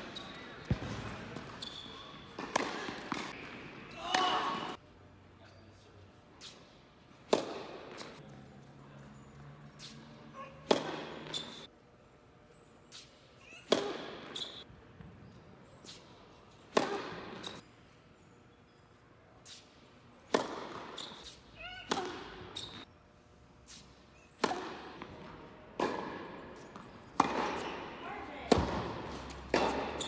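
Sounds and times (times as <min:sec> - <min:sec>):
racket striking tennis ball: 0:00.7 - 0:03.4, 0:07.2 - 0:08.2, 0:10.6 - 0:11.6, 0:13.6 - 0:14.6, 0:16.7 - 0:17.6, 0:20.3 - 0:22.8, 0:24.4 - 0:25.2, 0:25.8 - 0:30.0.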